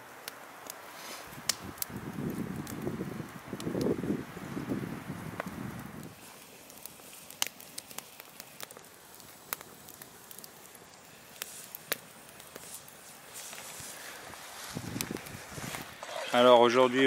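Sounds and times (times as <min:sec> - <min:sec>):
faint hiss: 0:00.0 - 0:17.0
wood fire crackling and popping: 0:00.0 - 0:17.0
low rustle: 0:11.3 - 0:16.8.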